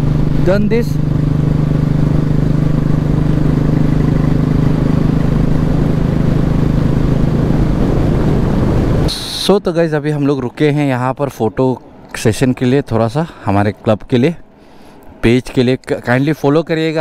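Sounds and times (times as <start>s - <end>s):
motorcycle engine running: 0.0s - 9.1s
wind and road noise: 0.0s - 17.0s.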